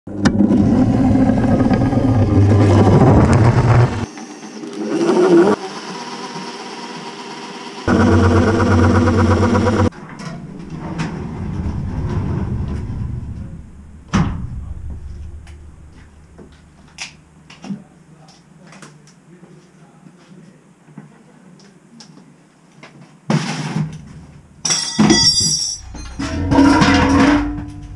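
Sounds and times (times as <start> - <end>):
workshop machine sounds: 0.1 - 11.4
power drill motor running: 5.6 - 9.9.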